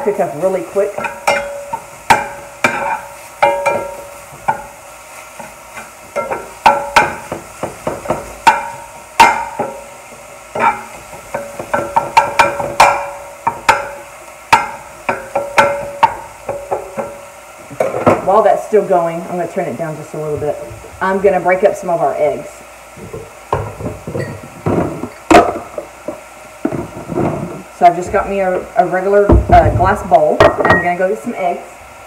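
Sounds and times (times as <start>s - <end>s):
faint frying: 0.0s - 32.0s
spatula scraping skillet: 0.8s - 18.3s.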